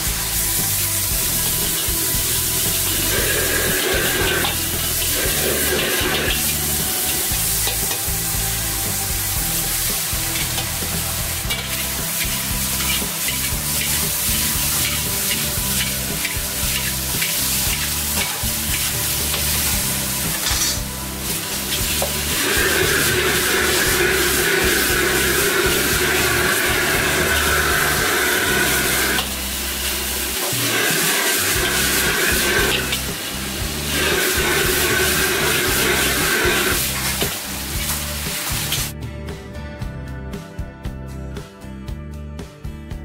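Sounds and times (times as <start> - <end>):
food sizzling in a wok: 0.0 - 39.0
metal ladle scraping a wok: 1.4 - 8.1, 10.2 - 33.1.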